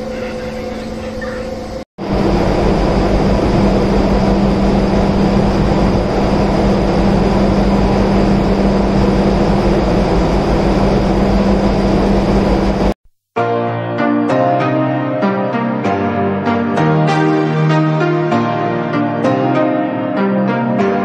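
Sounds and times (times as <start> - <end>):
loud machinery hum: 0.0 - 13.0.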